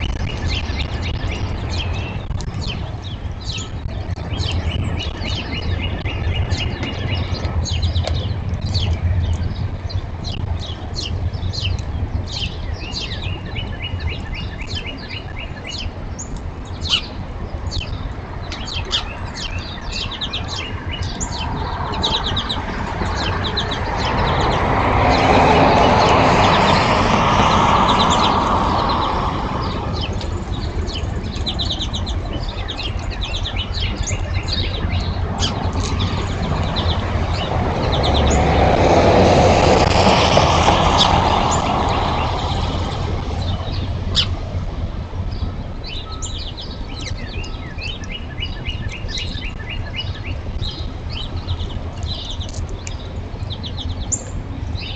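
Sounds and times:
small birds chirping: 0.0s - 39.0s, 39.8s - 44.6s, 45.2s - 54.9s
vehicle passing: 21.0s - 33.0s, 33.7s - 45.2s.

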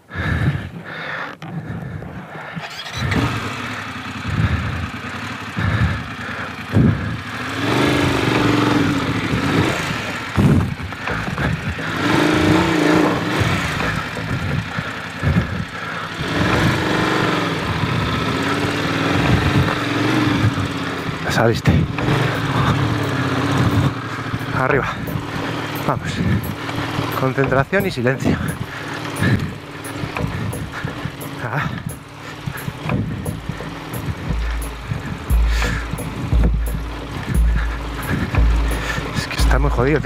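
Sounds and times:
motorcycle engine revving: 0.0s - 40.0s
sharp knocks: 32.8s - 38.8s.

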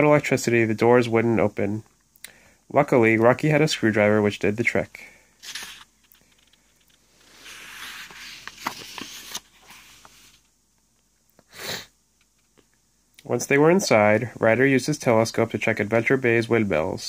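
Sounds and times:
paper page rustling: 5.4s - 10.5s.

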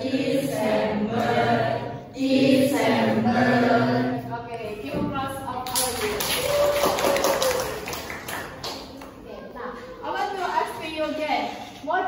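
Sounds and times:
children singing in unison: 0.0s - 4.3s.

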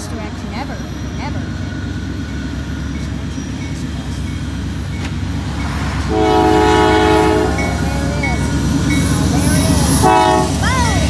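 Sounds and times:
locomotive rumbling past: 0.0s - 11.0s
locomotive horn blast: 5.3s - 10.6s.

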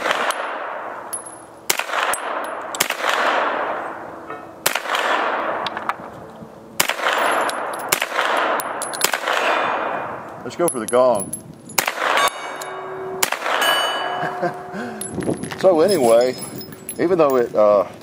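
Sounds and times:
bullets pinging on steel: 0.0s - 2.9s, 7.0s - 17.8s
gunshots with rolling echo: 0.0s - 6.0s, 6.8s - 10.6s, 11.8s - 14.8s.

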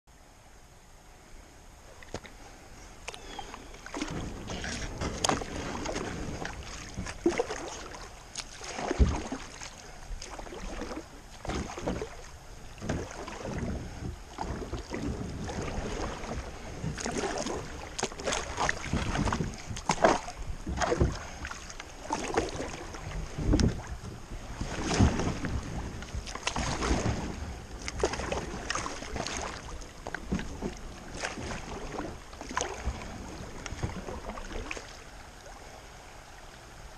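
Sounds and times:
water washing along hull: 1.8s - 36.9s
paddle splashing in water: 3.0s - 35.9s.

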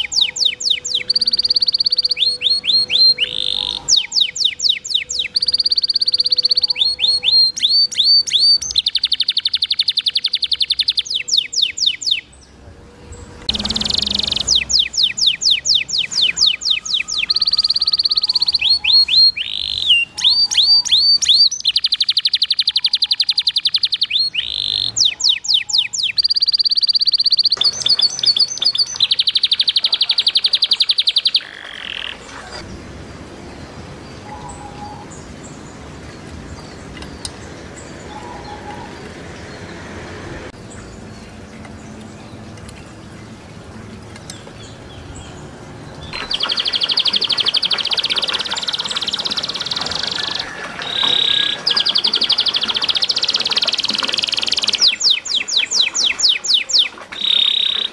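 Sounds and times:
faint bird chirps: 0.0s - 12.3s, 13.1s - 32.7s
canary singing trills: 0.0s - 32.8s, 33.4s - 39.8s, 44.2s - 57.9s
water trickling: 27.5s - 34.2s, 40.6s - 57.9s.

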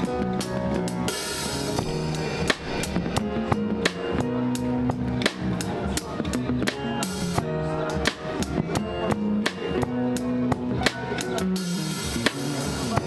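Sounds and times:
band playing: 0.0s - 13.0s
bass guitar: 0.0s - 13.0s
drum kit beat: 0.0s - 13.0s.

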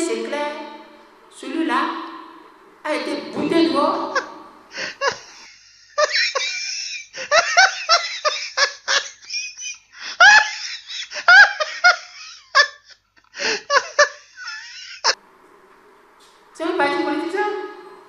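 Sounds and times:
hearty laughter: 4.1s - 15.2s.

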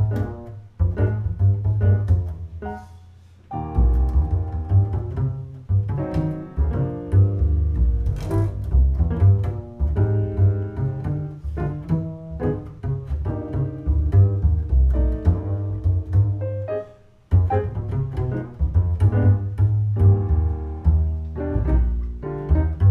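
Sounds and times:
double bass plucked notes: 0.0s - 22.9s.

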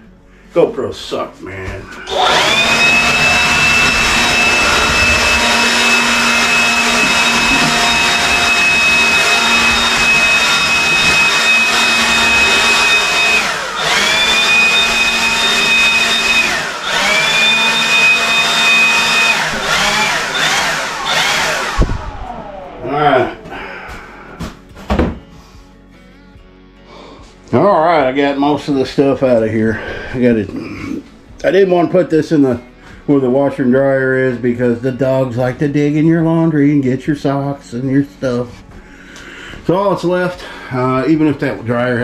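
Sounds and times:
leaf blower whining: 1.9s - 24.7s.

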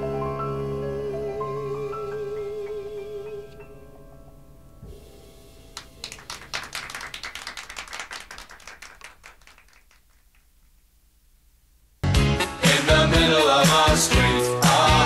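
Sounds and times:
audience clapping: 5.7s - 10.8s.

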